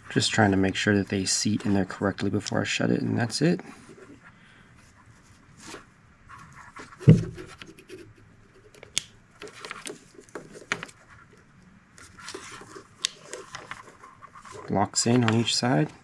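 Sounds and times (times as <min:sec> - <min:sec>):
rustling: 0:03.6 - 0:16.0
heavy thump: 0:07.0 - 0:07.4.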